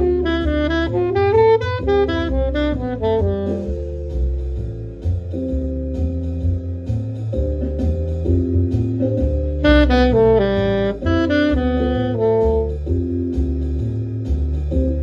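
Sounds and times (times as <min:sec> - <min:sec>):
alto saxophone improvising jazz: 0:00.0 - 0:04.7, 0:08.4 - 0:14.1
backing track bass and chords: 0:00.0 - 0:15.0.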